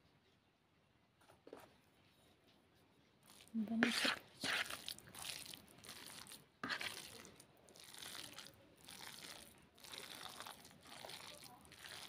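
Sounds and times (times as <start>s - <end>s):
meat squishing in plastic basin: 3.2s - 12.0s.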